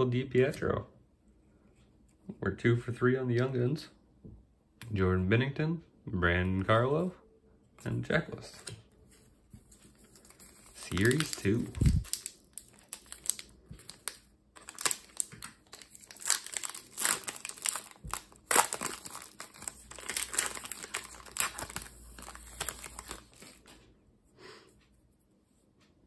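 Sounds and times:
foil wrapper tearing and crinkling: 0:10.2 - 0:23.6.

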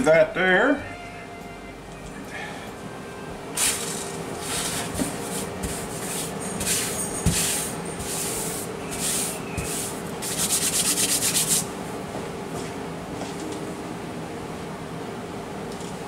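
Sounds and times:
hand wiping flour on countertop: 0:04.4 - 0:11.7.

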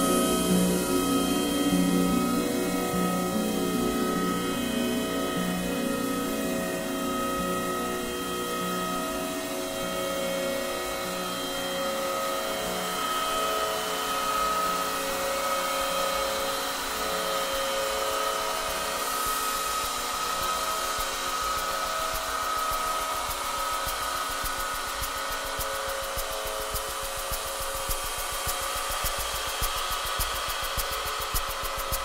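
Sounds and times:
ambient synthesizer drones: 0:00.0 - 0:32.0
vinyl record hiss: 0:18.8 - 0:32.0.

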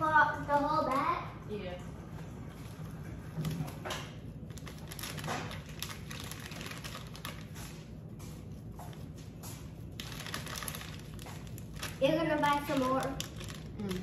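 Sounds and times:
plastic bag crinkling: 0:03.4 - 0:08.0, 0:09.8 - 0:14.0.

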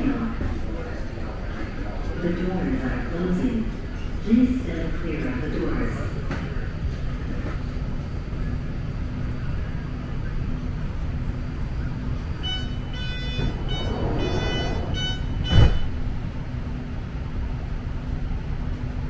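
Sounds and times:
train rumbling: 0:00.0 - 0:19.0
high whine: 0:11.0 - 0:18.2.

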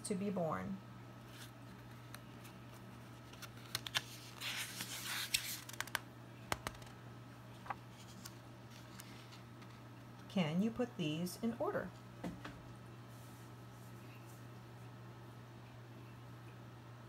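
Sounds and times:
steady low hum: 0:00.0 - 0:17.0
book pages turning: 0:01.3 - 0:06.9, 0:07.6 - 0:09.8
light clicks of pages: 0:03.2 - 0:06.9.

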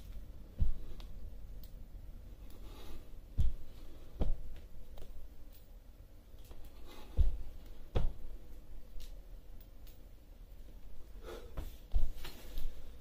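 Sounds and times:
faint clicks and scuffs: 0:00.0 - 0:01.8, 0:02.4 - 0:13.0
fists thudding on wooden floor: 0:07.1 - 0:08.3.

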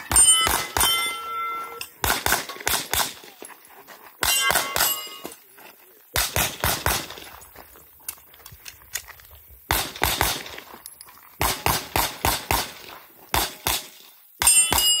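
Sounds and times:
pistol shots: 0:02.0 - 0:03.3, 0:04.2 - 0:05.3, 0:06.2 - 0:07.2, 0:09.7 - 0:10.6.

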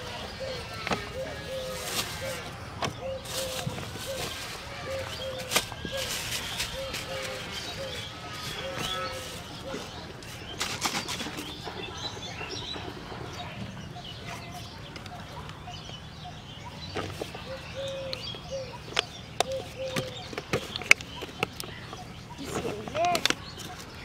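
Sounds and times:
birds calling: 0:00.0 - 0:24.0
plastic bottles crinkling: 0:00.7 - 0:11.5
plastic bag rustling: 0:00.8 - 0:11.5.

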